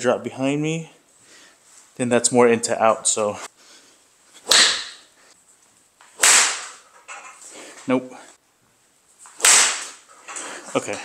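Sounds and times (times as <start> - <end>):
golf club striking ball: 4.4 - 5.0.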